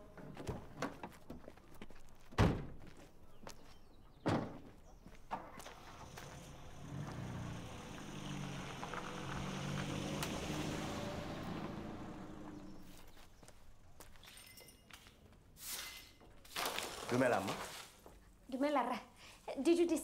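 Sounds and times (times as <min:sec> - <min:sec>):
vehicle engine running: 0:05.6 - 0:13.2.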